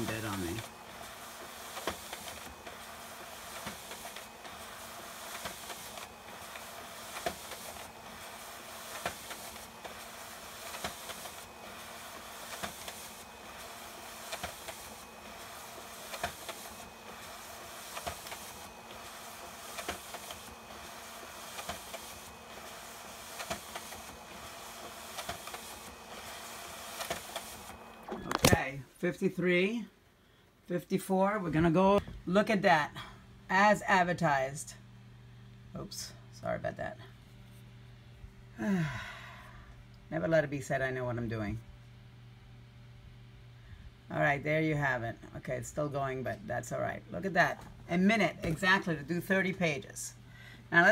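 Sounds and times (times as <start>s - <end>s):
document feeder running: 0.0s - 28.7s.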